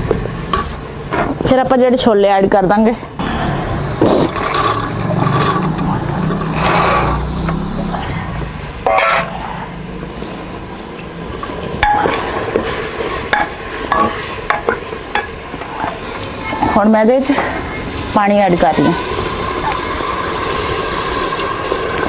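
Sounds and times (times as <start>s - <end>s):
ladle scraping pot: 3.9s - 8.1s, 8.8s - 9.4s.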